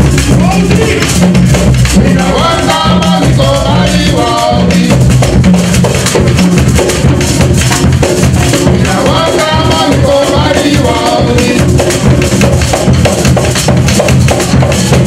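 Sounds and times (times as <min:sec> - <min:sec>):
hand drums: 0:00.0 - 0:15.0
shakers: 0:00.0 - 0:15.0
voices singing: 0:00.1 - 0:05.5, 0:07.2 - 0:12.3.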